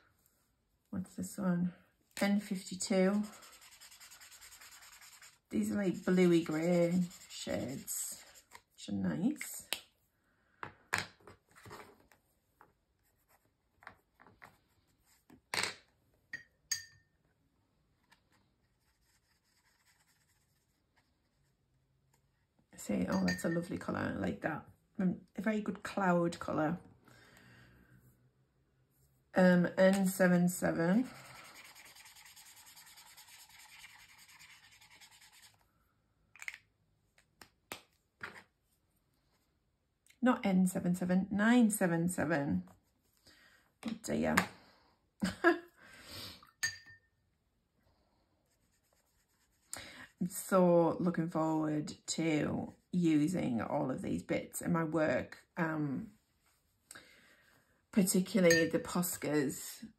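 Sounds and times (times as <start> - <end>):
brush tip rubbing on paper: 2.6 - 8.6, 18.7 - 21.5, 31.0 - 35.6, 48.5 - 49.7
pen scratching on paper: 3.1 - 8.6.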